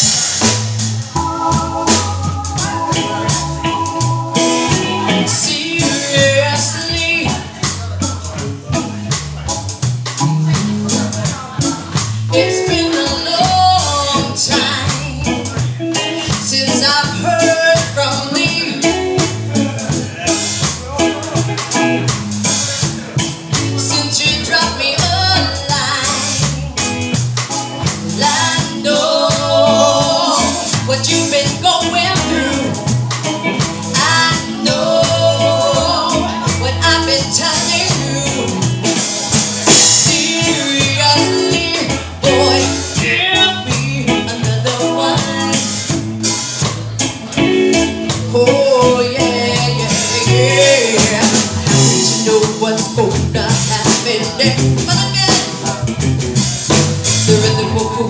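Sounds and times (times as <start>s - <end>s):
woman singing lead: 0.0s - 7.9s, 11.3s - 15.6s, 16.2s - 19.3s, 23.6s - 26.7s, 27.8s - 46.4s, 47.8s - 55.8s, 57.1s - 58.0s
live reggae band playing: 0.0s - 58.0s.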